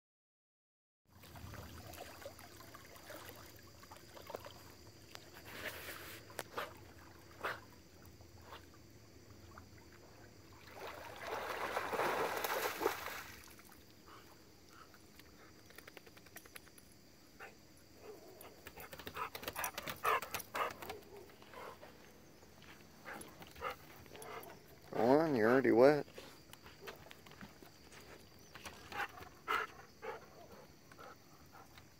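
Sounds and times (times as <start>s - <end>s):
water sloshing: 1.2s - 8.0s, 9.4s - 13.9s
dog splashing in water: 10.6s - 13.8s.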